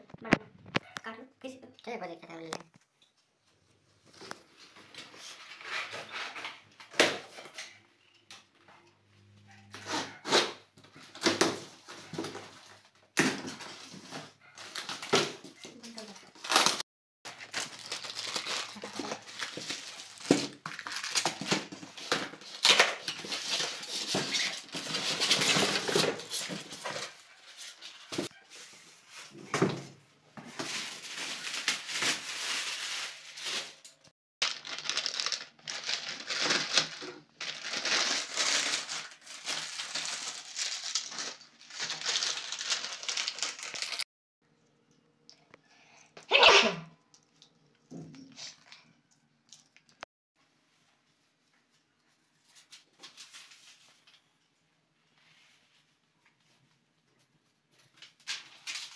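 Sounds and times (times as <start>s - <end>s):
plastic packaging crinkling: 13.6s - 29.3s, 30.5s - 44.1s.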